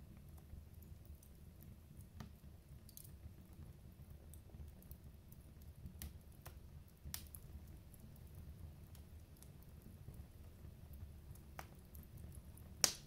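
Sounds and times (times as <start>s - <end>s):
wood fire crackling: 0.0s - 13.0s
fire popping: 0.1s - 13.0s.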